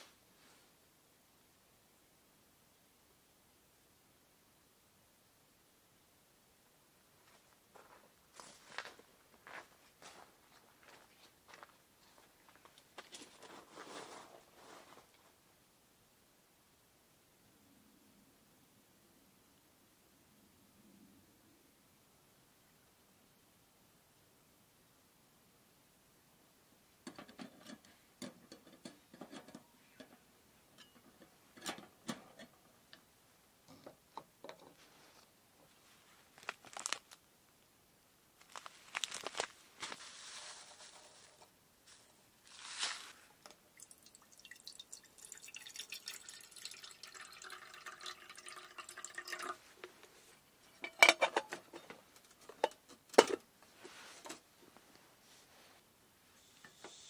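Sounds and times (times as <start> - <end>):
cookware clicks and knocks: 27.1 - 30.1, 30.8 - 32.5, 50.8 - 53.4
water pouring: 42.6 - 49.8.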